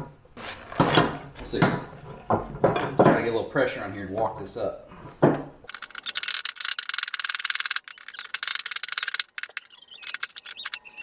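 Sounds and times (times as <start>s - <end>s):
hand ratchet clicking: 5.7s - 11.0s.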